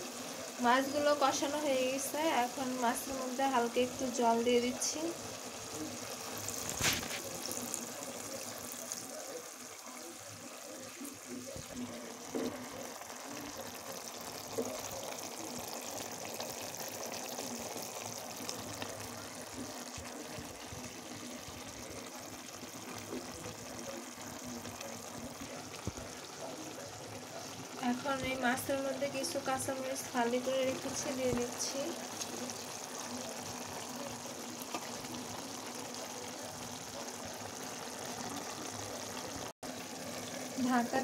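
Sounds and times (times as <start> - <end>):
curry simmering and sizzling: 0.0 - 41.0.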